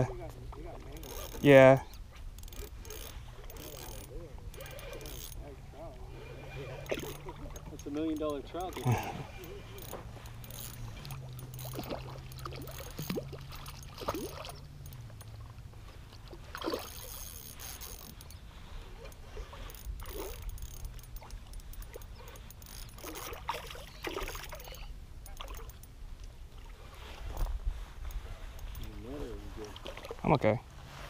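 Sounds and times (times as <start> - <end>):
fish splashing in water: 8.8 - 15.5, 16.1 - 25.8.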